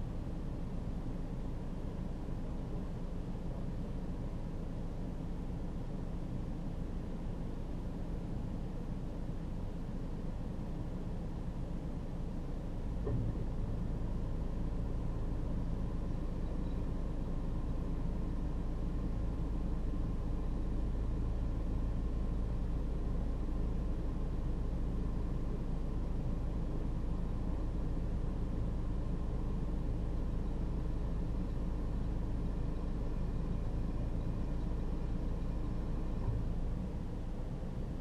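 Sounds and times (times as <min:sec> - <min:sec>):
faint steady tones: 0:00.0 - 0:38.0
vehicle engine idling: 0:00.0 - 0:38.0.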